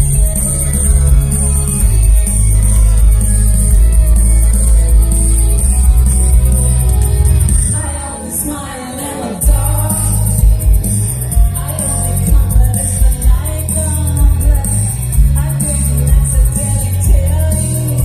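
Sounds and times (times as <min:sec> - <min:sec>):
live rock band: 0:00.0 - 0:18.0
woman singing: 0:07.6 - 0:10.5, 0:11.3 - 0:18.0.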